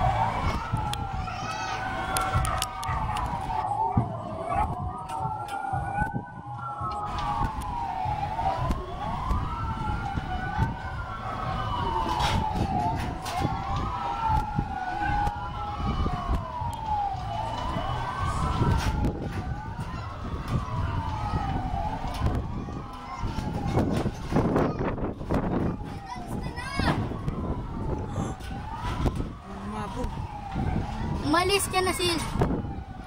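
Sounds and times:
emergency sirens wailing: 0.0s - 33.0s.

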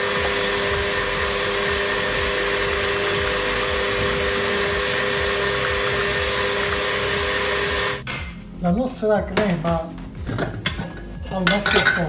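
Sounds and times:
stand mixer motor whining: 0.0s - 8.0s.

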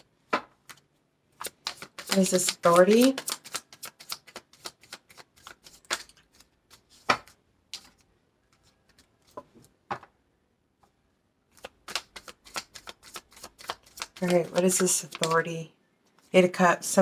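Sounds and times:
cards being shuffled: 0.6s - 9.8s, 11.5s - 15.5s.

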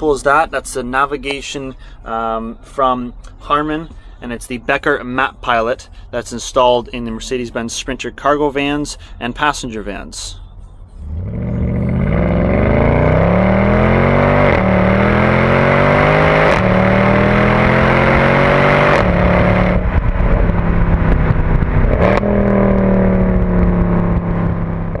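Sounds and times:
vehicle engine accelerating: 10.7s - 25.0s.

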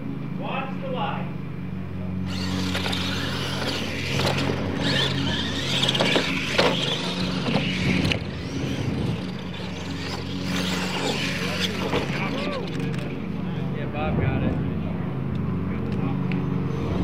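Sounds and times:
steady low hum: 0.0s - 17.0s
toy truck motor whine: 2.2s - 13.1s.

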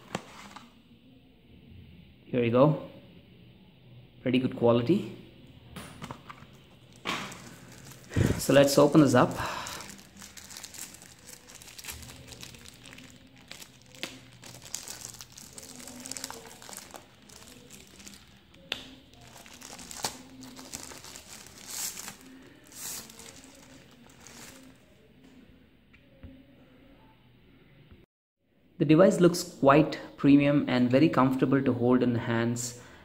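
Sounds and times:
plastic wrap crinkling: 6.5s - 24.9s.

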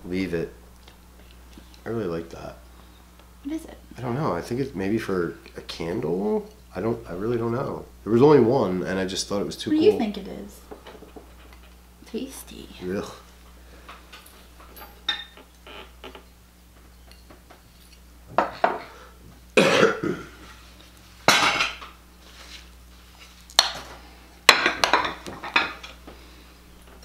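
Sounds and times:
dishes clinking and clattering: 14.1s - 15.5s, 21.3s - 21.9s, 24.5s - 26.0s.

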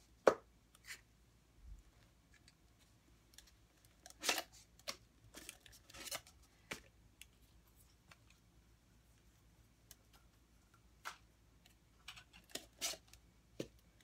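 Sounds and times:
plastic cups crackling and rustling: 2.0s - 8.5s, 9.9s - 14.0s.

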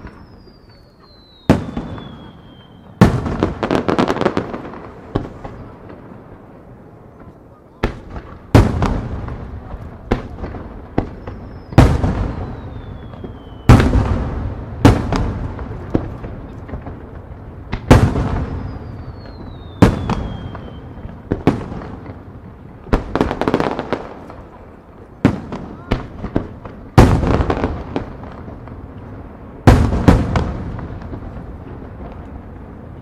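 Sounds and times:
high falling whistle: 11.3s - 13.7s.

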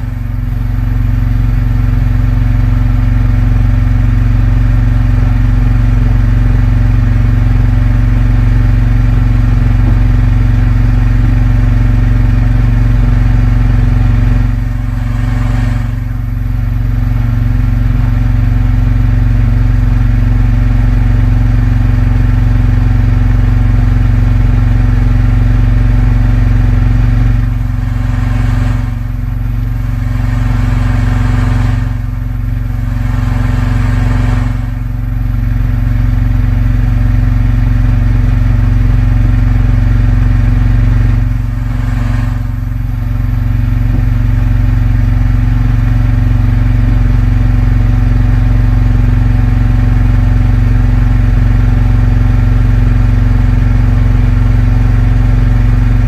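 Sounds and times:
boat engine droning: 9.3s - 19.4s, 24.2s - 46.5s.

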